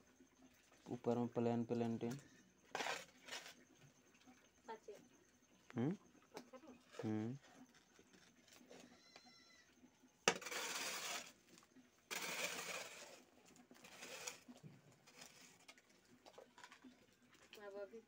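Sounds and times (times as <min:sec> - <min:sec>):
hoe scraping mud and gravel: 0:02.0 - 0:03.8, 0:10.2 - 0:16.9.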